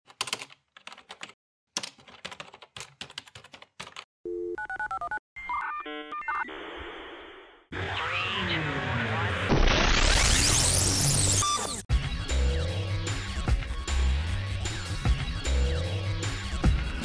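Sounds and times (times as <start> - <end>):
keyboard clicks: 0.1 - 4.1.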